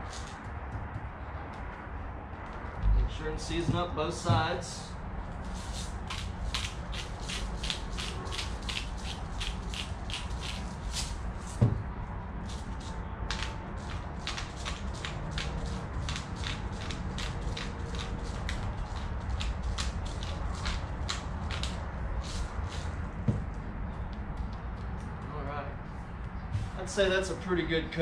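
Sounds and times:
thump: 11.6 - 11.9.

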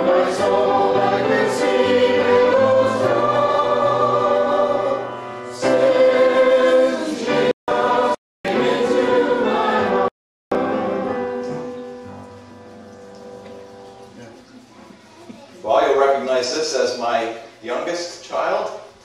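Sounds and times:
choir singing: 0.0 - 11.8.

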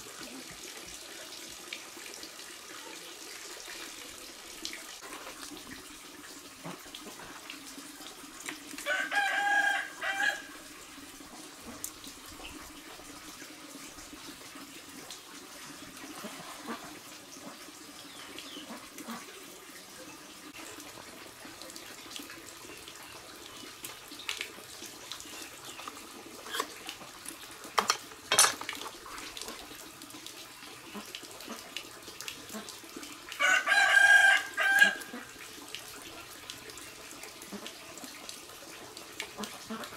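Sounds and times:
rooster crowing: 8.8 - 10.5, 33.4 - 35.1.

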